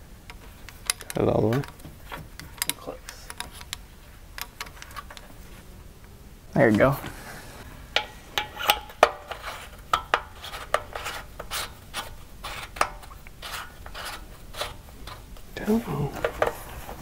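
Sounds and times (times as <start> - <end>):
light metallic clicks and taps: 0.2 - 3.8
braided hose rubbing: 0.3 - 5.7, 6.9 - 17.0.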